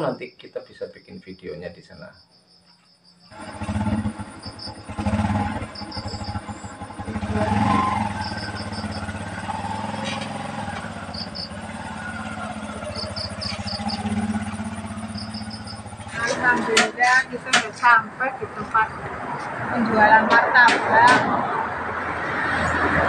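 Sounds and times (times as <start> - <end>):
insects chirping: 0.0 - 20.2
small motorcycle engine running: 3.3 - 17.6.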